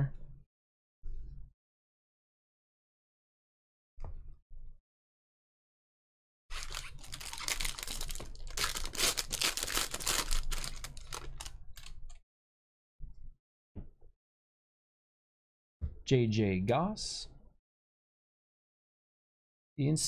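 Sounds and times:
cards and wrapper rustling: 6.5 - 12.1.

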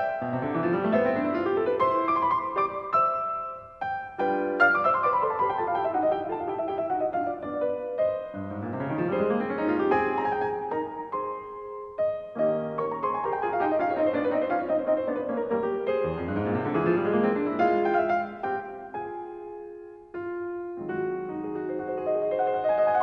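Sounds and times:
piano arpeggios: 0.0 - 23.0.

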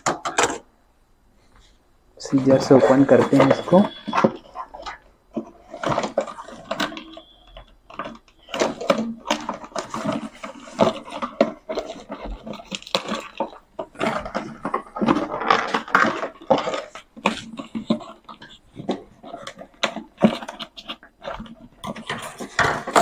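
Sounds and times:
cardboard rustling and scraping: 1.4 - 23.0.

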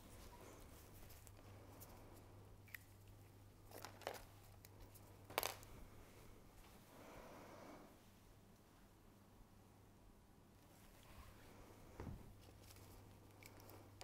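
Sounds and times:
faint rustles and clicks: 0.0 - 2.8, 10.6 - 14.0
steady low hum: 0.0 - 14.0.

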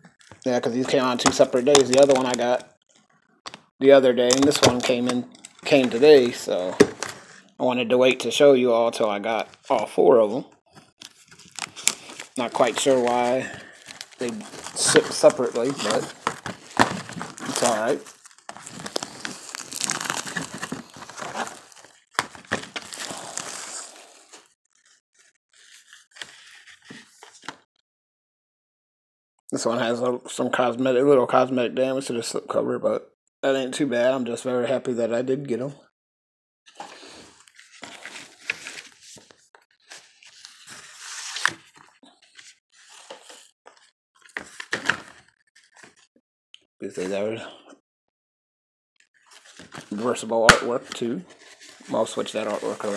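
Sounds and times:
cardboard packaging rustling: 0.8 - 2.6, 4.1 - 7.4, 10.7 - 24.9, 36.8 - 46.0, 51.3 - 52.9
paper mailer rustling: 11.2 - 23.8, 51.4 - 52.9
handling noises: 11.6 - 23.5.

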